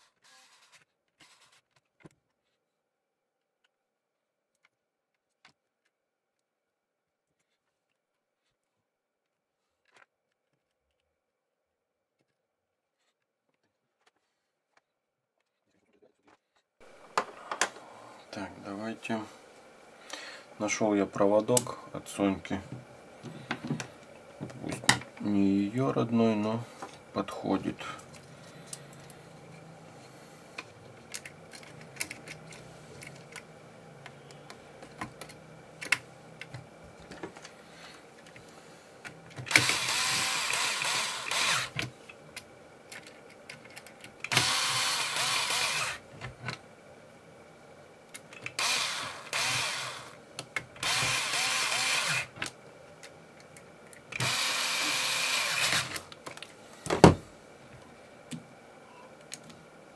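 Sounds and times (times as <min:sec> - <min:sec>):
electric screwdriver whirring: 0:39.5 - 0:41.8, 0:44.3 - 0:46.0, 0:48.6 - 0:50.2, 0:50.8 - 0:52.4, 0:54.2 - 0:56.1.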